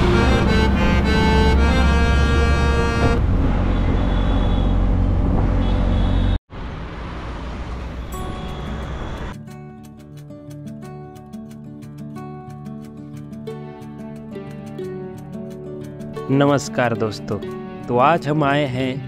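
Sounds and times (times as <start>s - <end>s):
auto-rickshaw engine running: 0.0s - 9.4s
road traffic: 0.0s - 10.3s.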